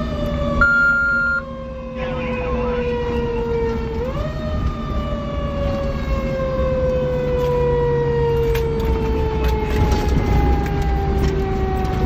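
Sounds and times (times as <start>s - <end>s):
fire engine siren wailing: 0.0s - 12.0s
truck engine and road rumble: 0.0s - 12.0s.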